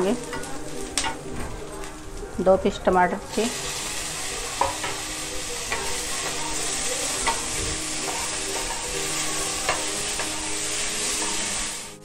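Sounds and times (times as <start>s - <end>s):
vegetables sizzling in oil: 0.0s - 12.0s
spatula scraping and tapping pan: 4.4s - 11.4s.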